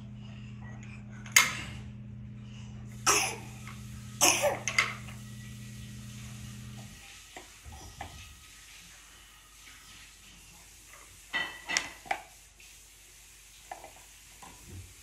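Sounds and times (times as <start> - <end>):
steady low hum: 0.0 - 7.1.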